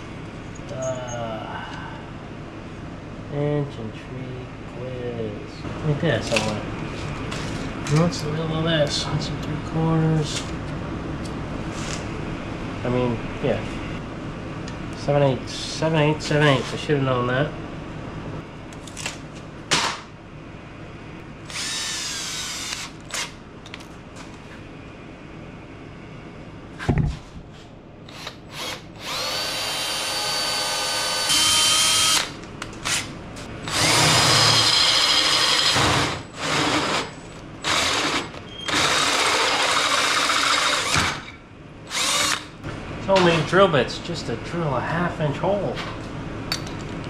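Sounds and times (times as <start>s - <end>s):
cordless drill motor whine: 21.5s - 23.2s, 28.1s - 32.3s, 33.6s - 41.2s, 41.9s - 42.5s.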